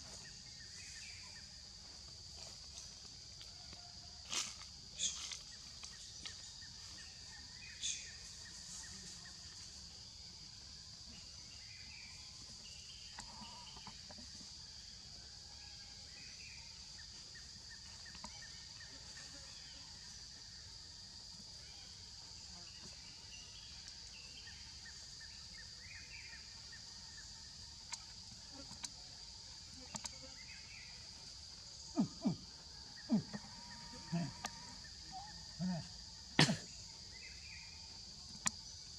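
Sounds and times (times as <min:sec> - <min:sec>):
faint chirps: 0:00.0 - 0:15.0, 0:15.7 - 0:38.9
high-pitched insect drone: 0:04.2 - 0:14.5, 0:15.8 - 0:38.9.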